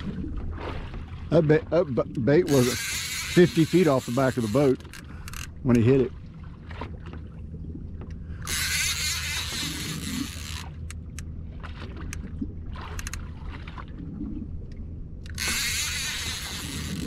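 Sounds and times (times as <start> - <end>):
outboard motor idling: 2.2 - 6.1.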